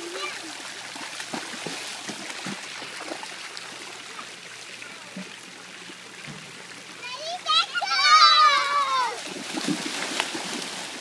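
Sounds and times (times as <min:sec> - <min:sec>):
children's feet splashing: 0:00.0 - 0:03.3, 0:07.8 - 0:11.0
running water rushing: 0:00.0 - 0:11.0.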